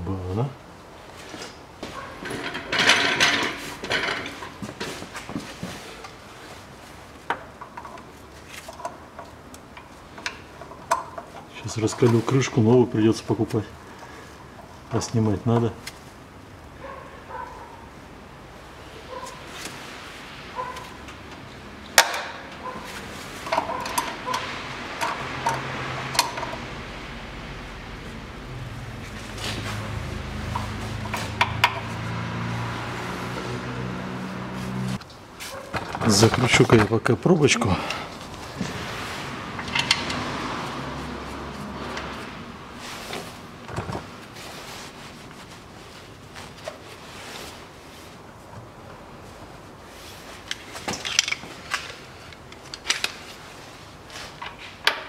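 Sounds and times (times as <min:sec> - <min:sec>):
metal hand tools clattering: 0:02.2 - 0:04.6.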